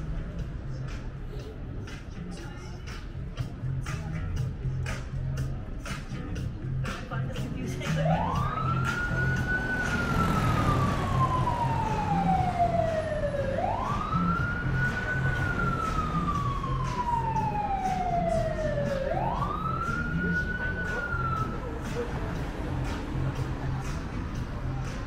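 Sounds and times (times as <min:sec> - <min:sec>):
emergency siren wailing: 0:08.0 - 0:22.4.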